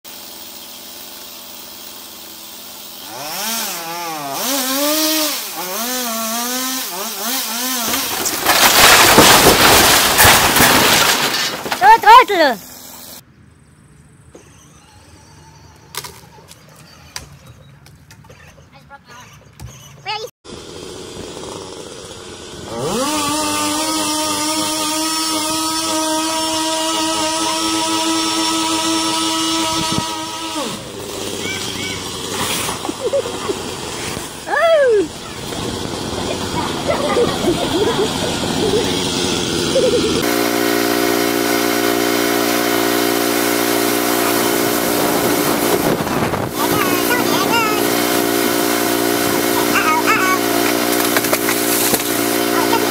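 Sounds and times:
chainsaw cutting timber: 0.1s - 13.2s, 20.5s - 52.9s
timber crashing down: 6.5s - 12.8s, 22.8s - 34.5s, 35.2s - 52.9s.

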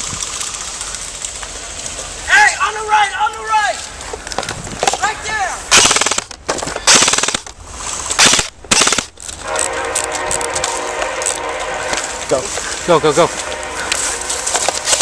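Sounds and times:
airsoft guns firing bursts: 5.7s - 7.5s, 8.2s - 9.1s.

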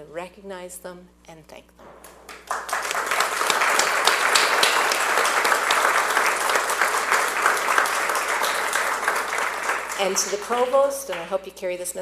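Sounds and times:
audience applauding: 2.2s - 11.2s.

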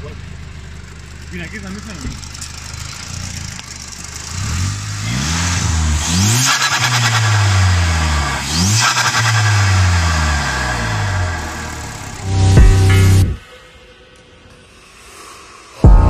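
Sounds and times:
car engine revving: 0.0s - 13.4s, 15.1s - 16.0s
rising turbo whistle: 10.5s - 13.4s.

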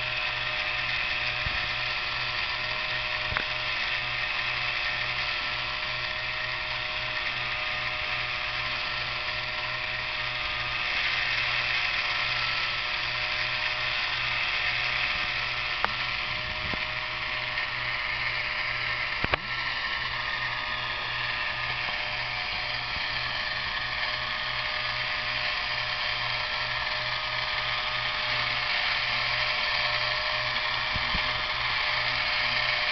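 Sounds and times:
small gearbox motor whirring: 0.0s - 32.9s
mechanical clicks: 18.3s - 19.8s.

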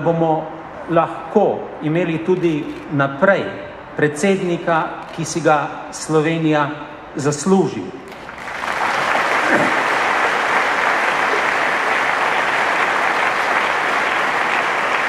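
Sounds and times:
large audience applauding: 8.1s - 15.0s.

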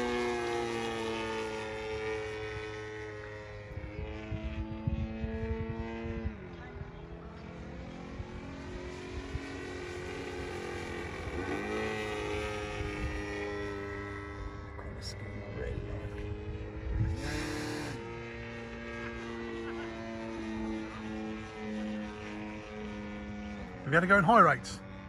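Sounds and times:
model aeroplane engine droning: 0.0s - 25.0s.

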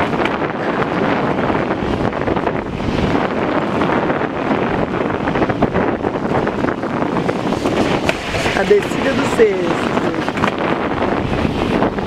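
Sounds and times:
sled runners scraping asphalt: 0.0s - 12.0s
wind buffeting microphone: 0.0s - 12.0s.

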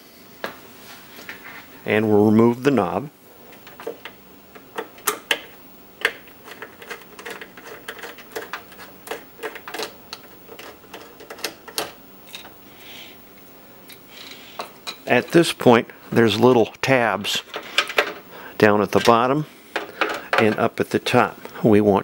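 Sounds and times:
soft rubbing hiss: 0.0s - 4.7s, 12.2s - 20.0s.

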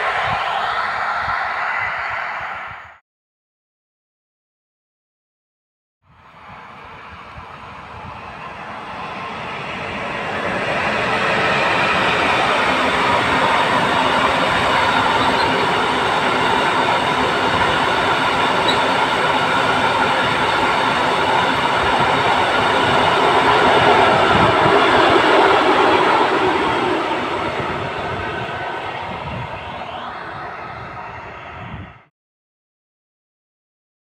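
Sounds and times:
freight train wheels rumbling on rails: 6.2s - 32.0s.

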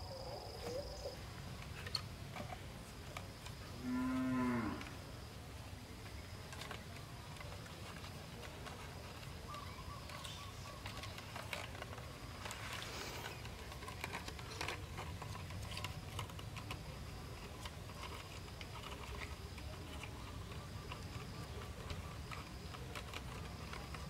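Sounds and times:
cord scratching and rustling: 6.0s - 24.0s.

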